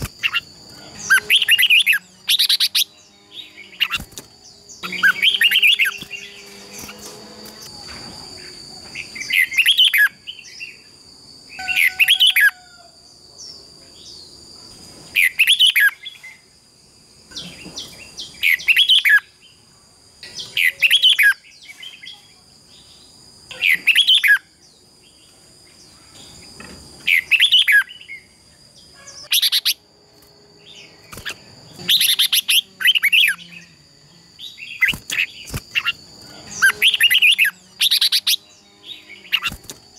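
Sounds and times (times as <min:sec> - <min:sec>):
bird warbling song: 0:00.0 - 0:10.9, 0:22.8 - 0:24.5, 0:25.9 - 0:29.8, 0:30.6 - 0:33.8, 0:34.4 - 0:39.8.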